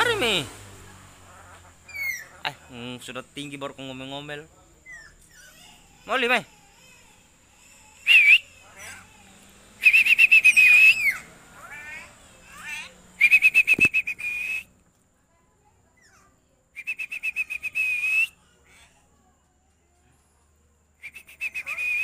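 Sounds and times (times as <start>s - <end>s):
faint chirps: 1.0s - 22.0s
trilled whistles: 7.6s - 9.2s, 9.8s - 11.3s, 11.9s - 14.8s, 16.8s - 18.4s, 21.0s - 22.0s
short whistle: 9.8s - 11.2s, 13.2s - 14.7s, 16.8s - 18.3s, 21.0s - 22.0s.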